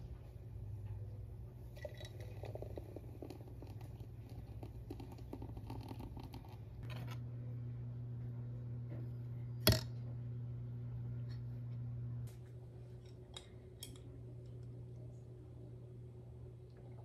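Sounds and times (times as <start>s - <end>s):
steady low hum: 0.0s - 17.0s
milk pouring into bottle: 1.8s - 6.7s.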